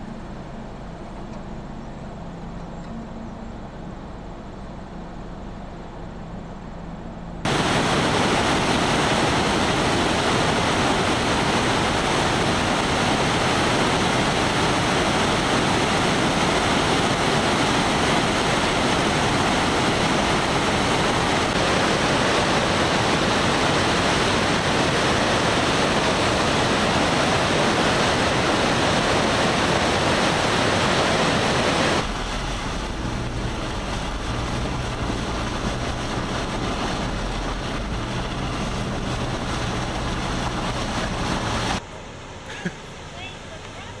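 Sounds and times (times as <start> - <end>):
vehicle engine hum: 0.0 - 44.0
creek rushing through rapids: 7.4 - 44.0.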